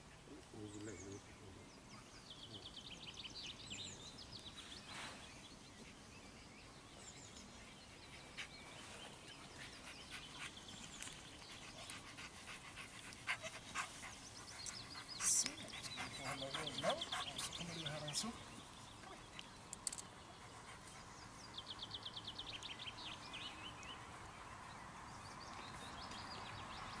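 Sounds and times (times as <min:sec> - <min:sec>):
dog panting: 0:09.4 - 0:18.4.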